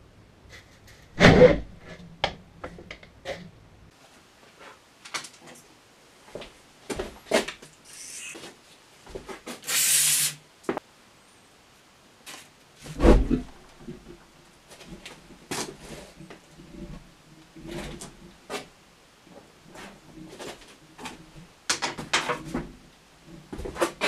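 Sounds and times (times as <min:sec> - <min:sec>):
aerosol can spraying: 0:07.9 - 0:08.4, 0:09.6 - 0:10.4.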